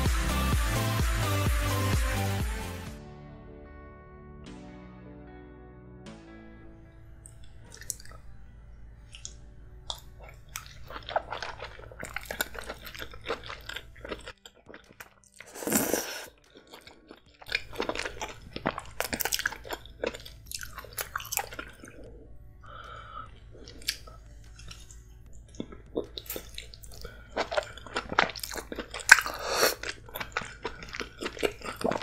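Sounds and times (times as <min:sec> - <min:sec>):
wet chewing: 0:07.2 - 0:08.3, 0:09.1 - 0:32.0.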